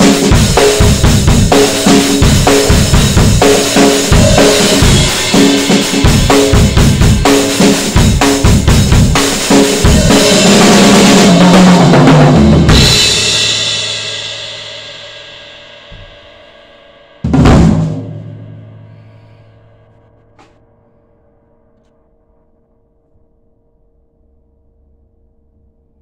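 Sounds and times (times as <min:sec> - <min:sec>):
drum kit fills and rolls: 0:00.0 - 0:20.6
crash cymbal ringing: 0:02.6 - 0:08.2, 0:09.5 - 0:11.5.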